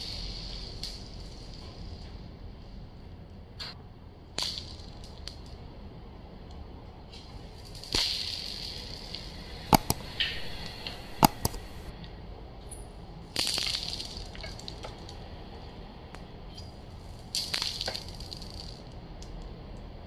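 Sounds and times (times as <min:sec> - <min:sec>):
marbles rolling on hard floor: 0:13.4 - 0:15.1, 0:17.4 - 0:18.9.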